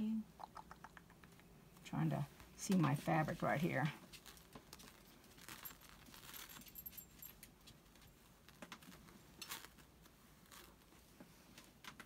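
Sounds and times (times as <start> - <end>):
faint fabric rustling: 1.7 - 12.0.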